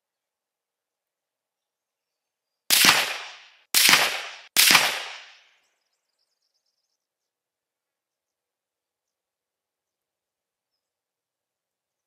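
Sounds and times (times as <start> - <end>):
rifle shots: 2.7 - 5.5.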